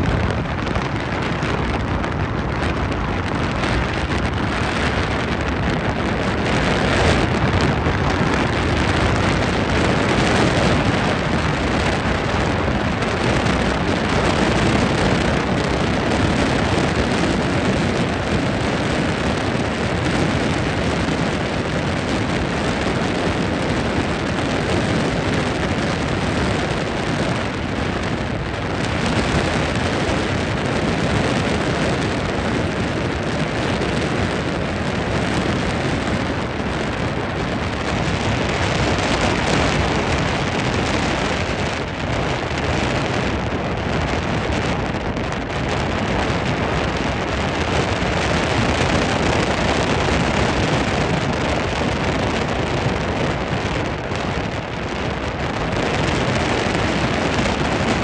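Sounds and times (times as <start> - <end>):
rush of wind and water: 0.0 - 58.0.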